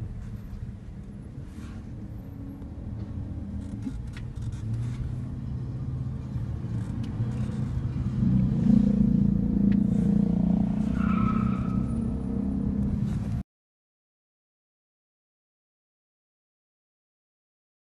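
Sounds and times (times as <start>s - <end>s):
car engine and road noise: 0.0s - 13.4s.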